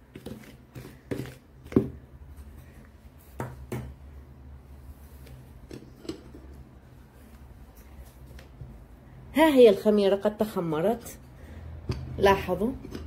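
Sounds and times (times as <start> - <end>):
spoon stirring flour in bowl: 0.0 - 2.0
low steady hum: 0.0 - 13.0.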